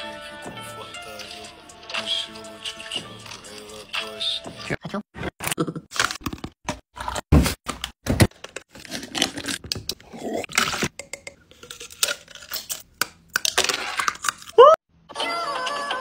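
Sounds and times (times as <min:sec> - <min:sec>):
plastic cup crackling against ice: 0:10.5 - 0:14.6.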